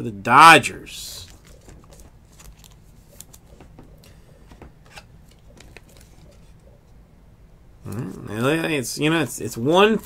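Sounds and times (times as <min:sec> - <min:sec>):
card rustling into plastic sleeve: 0:01.2 - 0:06.6.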